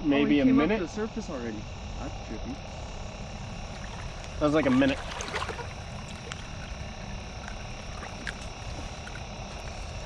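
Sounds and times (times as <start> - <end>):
low rumble and hiss: 0.0 - 10.0.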